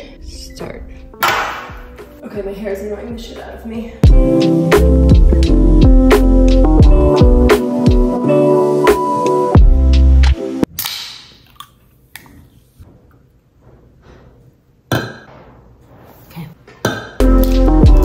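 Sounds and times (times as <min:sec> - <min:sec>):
music: 0:00.0 - 0:10.7, 0:17.2 - 0:18.0.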